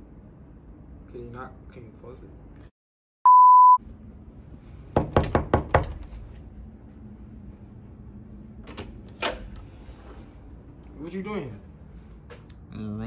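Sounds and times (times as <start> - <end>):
test tone beep: 3.3 - 3.8
knocking on door: 5.0 - 6.1.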